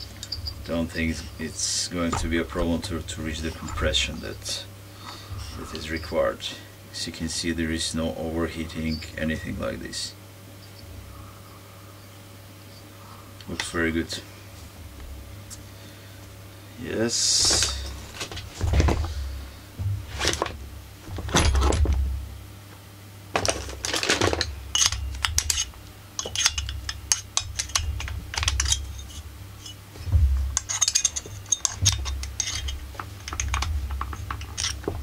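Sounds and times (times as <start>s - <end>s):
low handling rumble: 0.0s - 6.5s, 17.0s - 22.7s, 27.6s - 35.0s
plastic and metal parts clicking: 30.6s - 35.0s.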